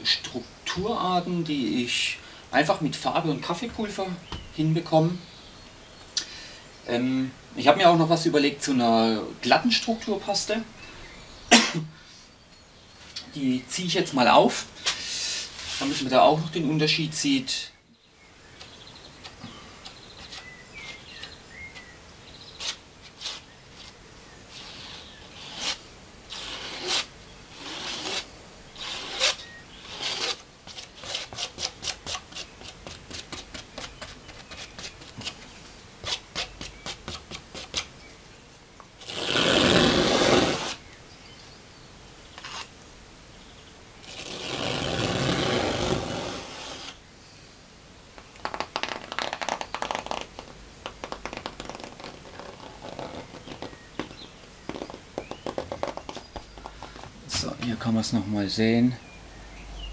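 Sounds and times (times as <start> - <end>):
loud rubbing noises: 14.8 - 16.3, 22.6 - 37.9, 39.0 - 40.8, 44.0 - 47.0, 48.4 - 57.6
spatula scraping paste on canvas: 18.6 - 21.9, 22.5 - 37.9, 39.0 - 40.8, 42.4 - 42.7, 44.0 - 47.0, 48.4 - 57.1.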